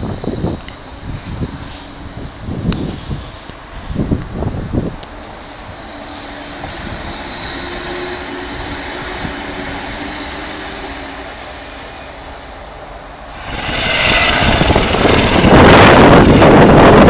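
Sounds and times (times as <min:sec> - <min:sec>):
tram running past: 0:00.0 - 0:17.0
helicopter flying low overhead: 0:13.2 - 0:17.0.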